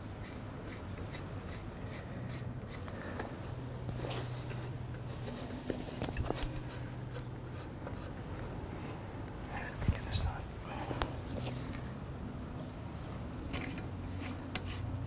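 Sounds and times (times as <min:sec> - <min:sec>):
steady low hum: 0:00.0 - 0:15.0
screw rubbing and clicking: 0:06.0 - 0:06.8.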